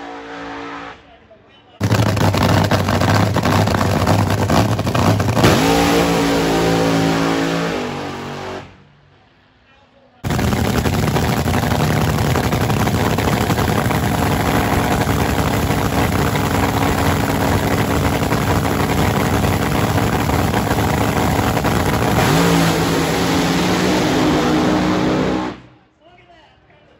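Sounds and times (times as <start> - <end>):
drag car engine roaring: 1.8 - 9.4, 10.2 - 25.9.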